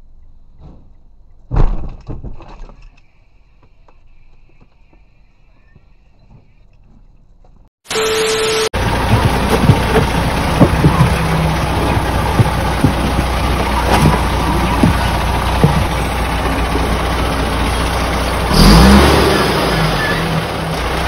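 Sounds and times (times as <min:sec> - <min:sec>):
truck engine idling: 0:07.9 - 0:21.0.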